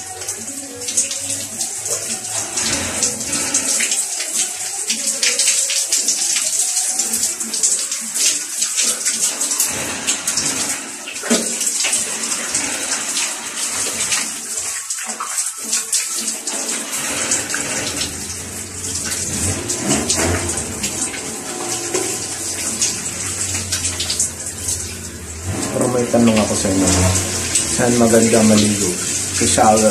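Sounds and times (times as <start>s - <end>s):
shower spraying water: 0.0s - 29.9s
water splashing: 0.0s - 29.9s
low hum: 17.0s - 29.9s.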